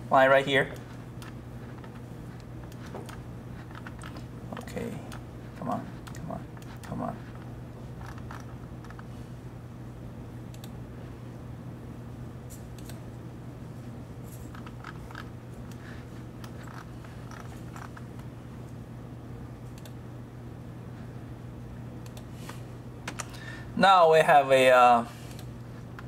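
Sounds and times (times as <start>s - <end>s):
steady low hum: 0.0s - 26.0s
computer mouse clicks: 6.0s - 9.1s, 10.5s - 10.8s, 12.7s - 13.0s, 14.5s - 15.8s, 19.7s - 20.0s, 22.0s - 22.3s, 25.3s - 26.0s.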